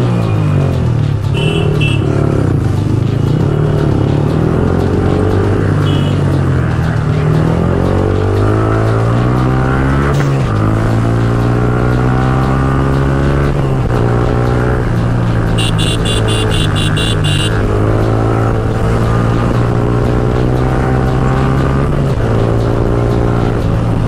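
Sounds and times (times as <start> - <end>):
motorcycle engine running: 0.0 - 24.0
rapid high beeping: 5.8 - 6.2, 15.6 - 17.6.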